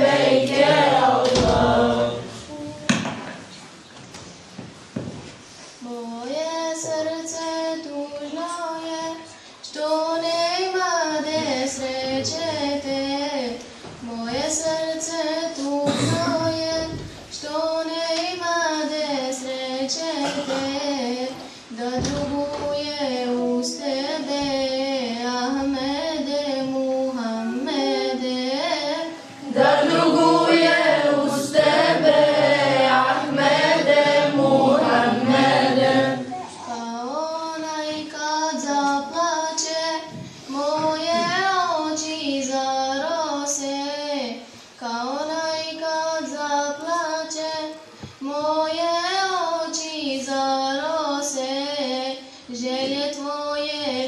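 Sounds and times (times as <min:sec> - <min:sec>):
girls singing unaccompanied: 0:00.0 - 0:03.1, 0:05.9 - 0:54.0.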